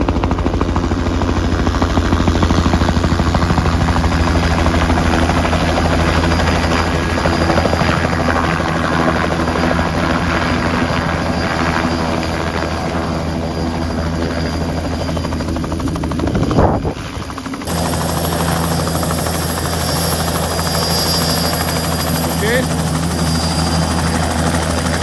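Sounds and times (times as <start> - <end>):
helicopter rotor and turbine: 0.0 - 25.0
wind buffeting microphone: 15.9 - 17.4.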